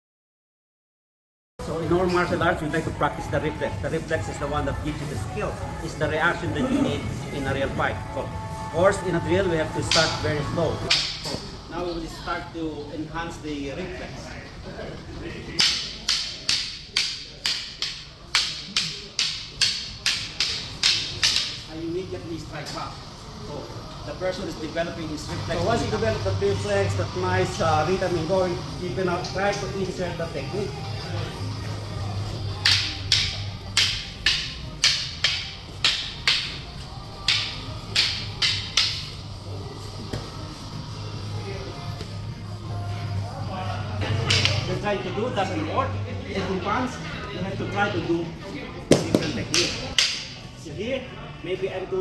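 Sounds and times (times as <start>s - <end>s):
wooden sticks clacking: 10.8s - 11.4s, 15.6s - 21.6s, 32.6s - 39.2s, 48.9s - 50.4s.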